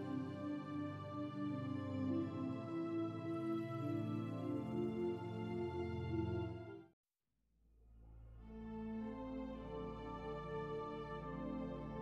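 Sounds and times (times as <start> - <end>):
instrumental music with held notes: 0.0 - 6.9.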